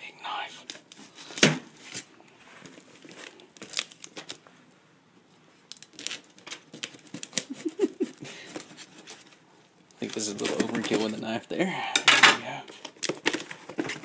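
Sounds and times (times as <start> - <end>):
packing tape tearing: 3.0 - 4.4, 5.7 - 9.4, 10.0 - 11.2, 12.7 - 14.0
cardboard box crinkling and scraping: 10.0 - 11.3, 12.8 - 14.0.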